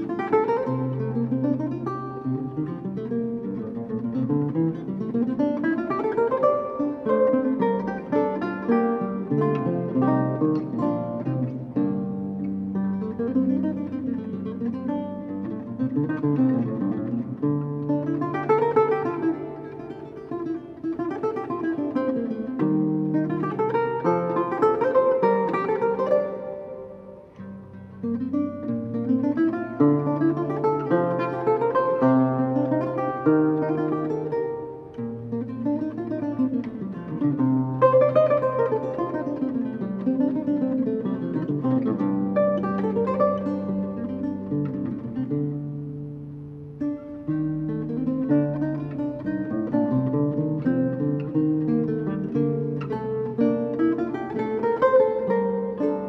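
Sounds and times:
solo lute playing: 0.0 - 56.0.

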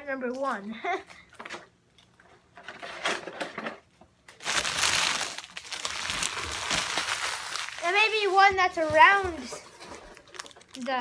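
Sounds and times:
foil wrapper crinkling: 4.3 - 9.0, 10.0 - 11.0.

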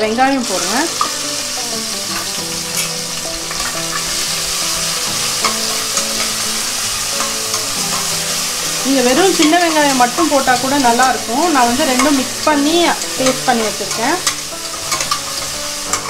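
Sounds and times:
paste sizzling in hot oil: 0.0 - 16.0
ladle scraping a pan: 11.8 - 16.0.

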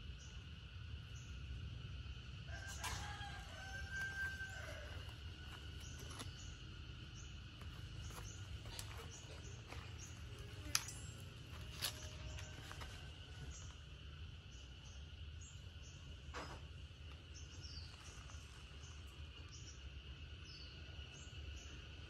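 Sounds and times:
high insect drone: 0.0 - 22.0
rooster crowing: 2.4 - 6.4.

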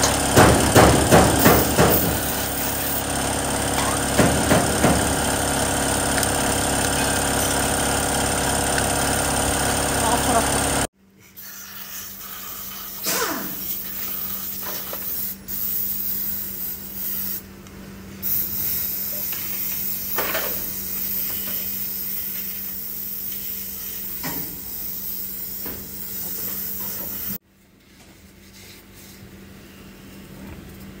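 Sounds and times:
aerosol spray hissing: 1.4 - 3.0.

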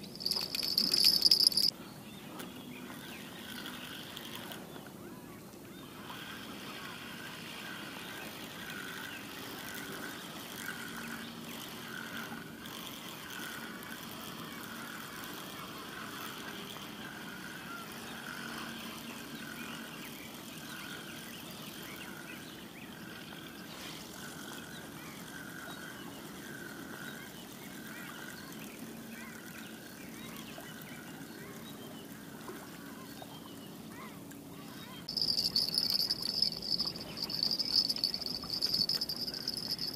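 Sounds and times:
soft high haze: 35.1 - 39.9.

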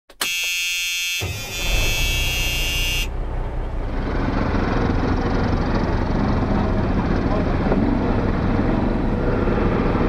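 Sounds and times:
high buzzing horn-like tone: 0.2 - 3.1
quad engines running: 1.2 - 10.0.

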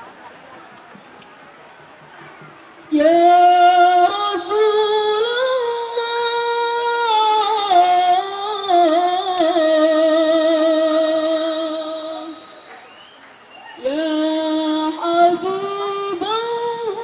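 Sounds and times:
person singing unaccompanied: 2.9 - 12.6, 13.8 - 17.0.

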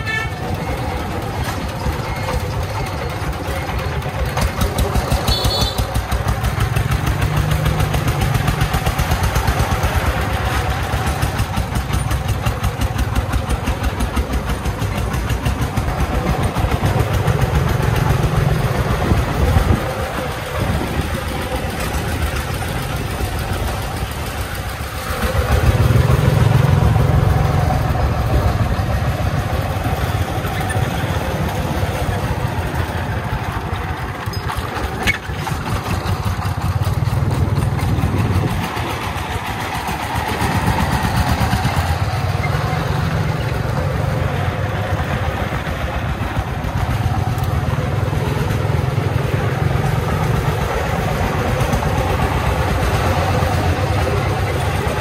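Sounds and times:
diesel engine chugging: 0.0 - 55.0.

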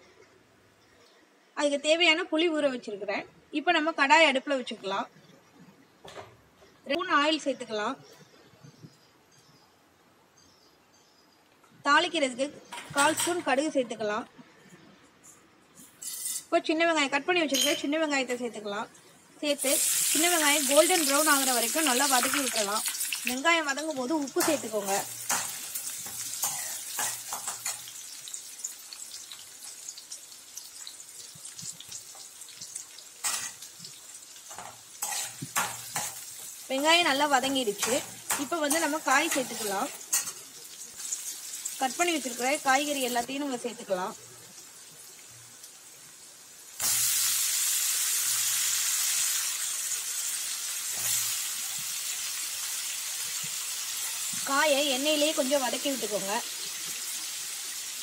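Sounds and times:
shallots sizzling in hot oil: 15.8 - 16.6, 19.4 - 58.0.

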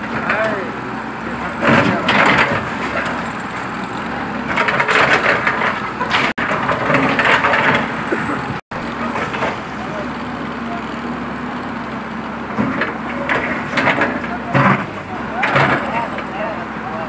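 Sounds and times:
masonry cracking and crunching: 1.5 - 10.3.

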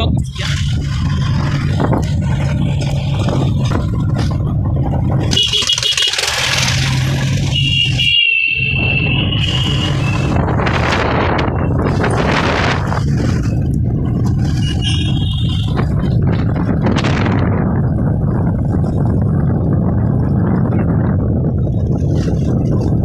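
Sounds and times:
motorcycle engine running: 0.0 - 23.0
wind noise on microphone: 0.0 - 23.0
horn rapid beeps: 5.3 - 6.2, 7.5 - 10.4, 14.6 - 15.8.

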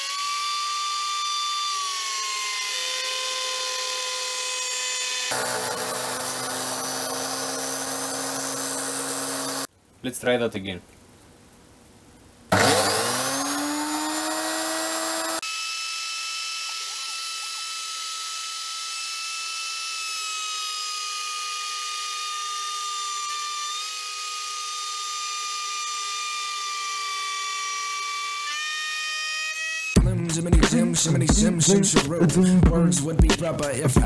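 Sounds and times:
router spindle high-pitched whine: 0.0 - 9.7, 12.5 - 30.0.

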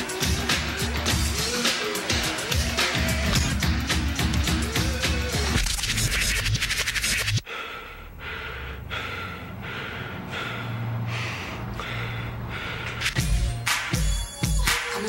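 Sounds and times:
dance music: 0.0 - 7.4, 13.1 - 15.0
rhythmic breathy exhalations: 0.0 - 14.9.

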